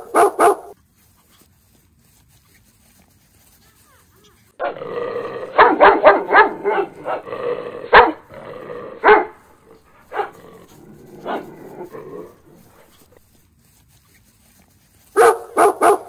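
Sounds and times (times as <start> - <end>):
dog barking: 0.0 - 0.8, 4.6 - 4.8, 5.4 - 8.3, 9.0 - 10.4, 11.2 - 11.6, 15.2 - 16.0.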